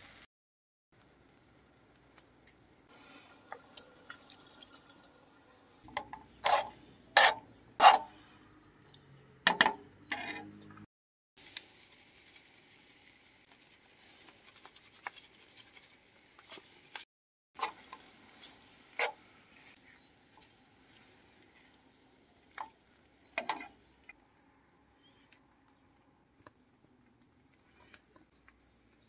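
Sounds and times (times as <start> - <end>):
metal spoon scraping frying pan: 5.9 - 8.3, 9.5 - 10.6.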